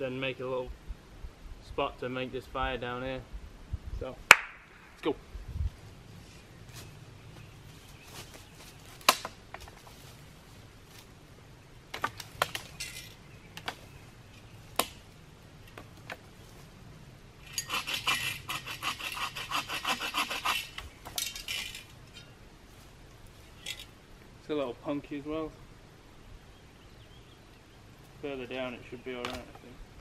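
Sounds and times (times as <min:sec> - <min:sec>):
saw cutting wood: 0:17.5 - 0:20.8.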